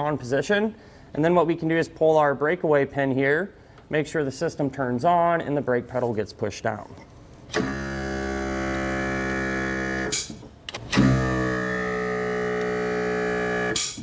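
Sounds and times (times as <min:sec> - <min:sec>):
braking motor droning: 0:10.9 - 0:13.8.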